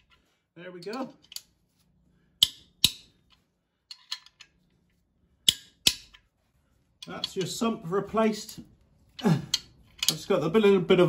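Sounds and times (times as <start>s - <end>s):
metallic clicks from hand tools: 0.8s - 1.5s, 7.0s - 7.6s, 9.5s - 10.4s.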